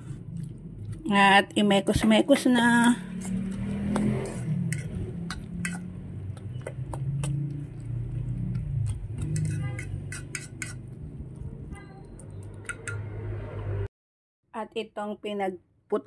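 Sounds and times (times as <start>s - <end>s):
utensil stirring in metal bowl: 1.2s - 13.1s.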